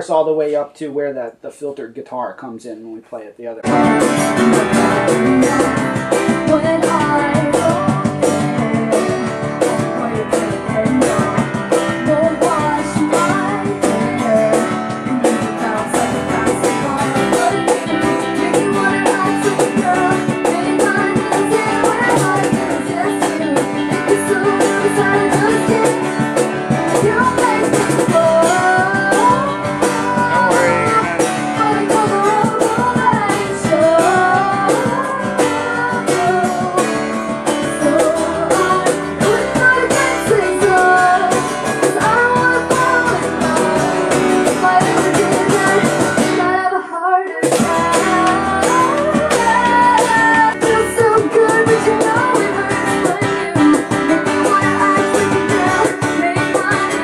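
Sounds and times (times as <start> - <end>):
strummed acoustic guitar: 3.6 - 46.6
keyboard: 3.6 - 46.7
woman singing into a microphone: 3.6 - 57.0.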